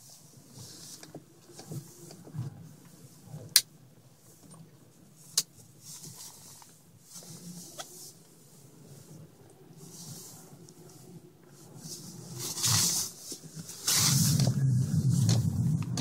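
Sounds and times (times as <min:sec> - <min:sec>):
car cabin hum: 0:13.4 - 0:16.0.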